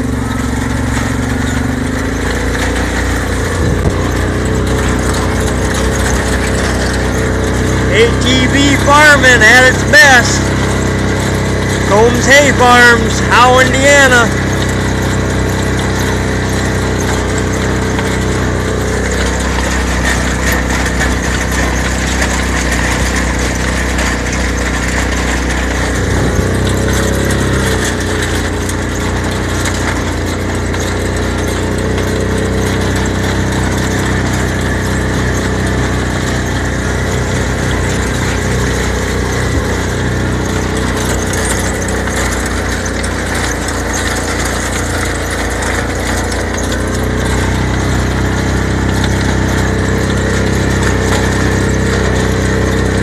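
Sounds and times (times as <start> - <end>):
atv engine running: 0.0 - 53.0.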